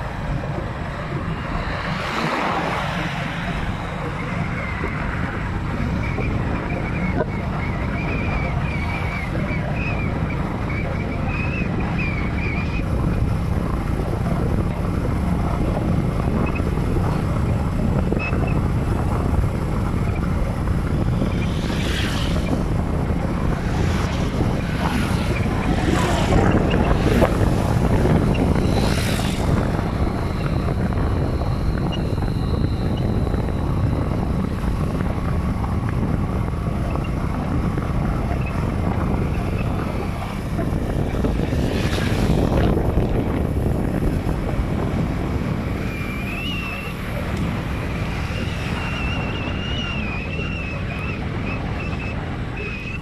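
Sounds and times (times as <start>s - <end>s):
road noise rumble: 0.0s - 53.0s
wind buffeting microphone: 0.0s - 53.0s.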